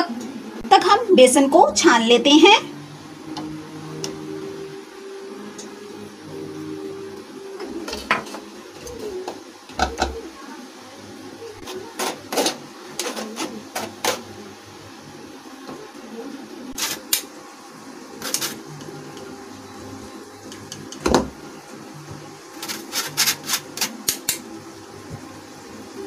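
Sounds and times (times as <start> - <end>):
spoon scraping metal sieve: 22.6 - 24.0.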